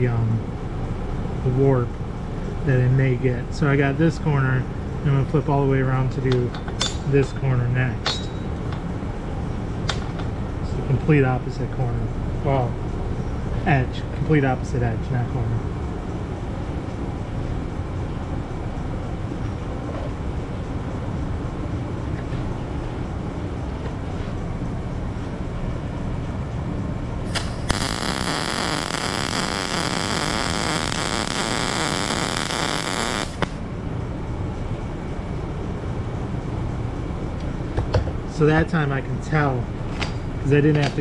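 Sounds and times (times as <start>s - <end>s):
low shop hum: 0.0s - 41.0s
welder arc crackling and hissing: 27.2s - 33.6s.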